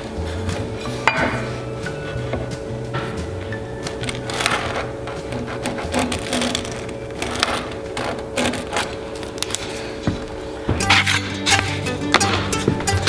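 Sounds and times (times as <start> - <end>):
pencil scratching on wood: 4.4 - 9.0.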